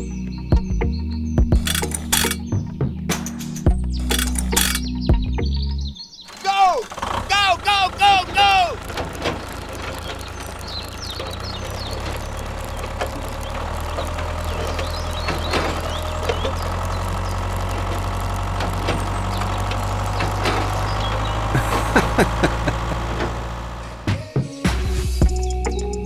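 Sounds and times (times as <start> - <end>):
light clicks: 1.6 - 2.4, 4.0 - 4.9
tractor engine droning: 1.6 - 2.6, 3.7 - 24.2.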